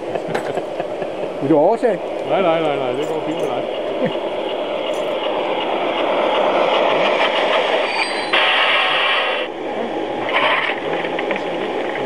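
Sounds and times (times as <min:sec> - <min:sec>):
model train rolling on track: 0:00.0 - 0:12.0
loud noisy burst: 0:06.4 - 0:11.4.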